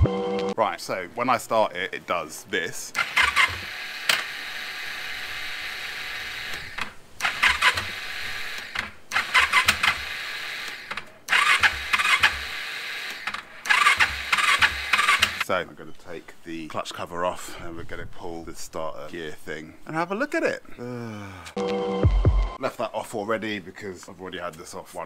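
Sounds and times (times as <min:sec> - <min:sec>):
electric starter clacking and whirring: 0:03.0 - 0:15.5.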